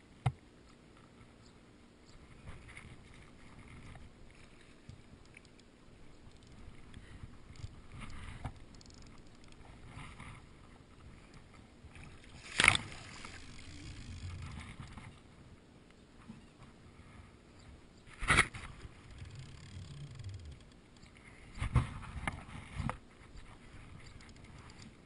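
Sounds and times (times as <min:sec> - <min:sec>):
fishing reel rustling: 0:02.4 - 0:15.2, 0:18.1 - 0:25.0
water sloshing: 0:02.4 - 0:15.3.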